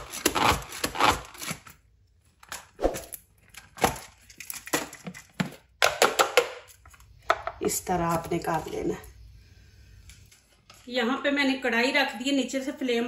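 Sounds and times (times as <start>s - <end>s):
food chopper chopping onions: 0.0s - 1.7s.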